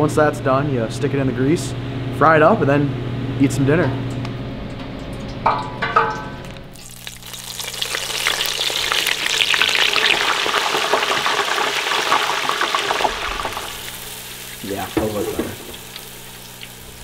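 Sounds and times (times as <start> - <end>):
oil sizzling in deep fryer: 4.8 - 17.0.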